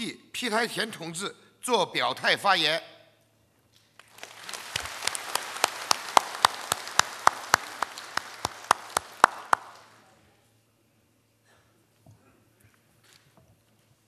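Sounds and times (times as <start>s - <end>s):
audience applauding: 4.0s - 10.1s
loud even hand clapping: 4.0s - 10.1s.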